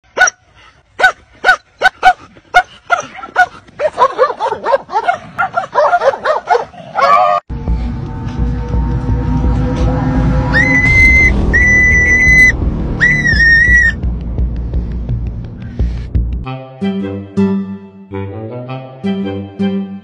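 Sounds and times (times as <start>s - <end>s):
dog yelping: 1.0s - 7.4s
dogs barking: 1.0s - 7.4s.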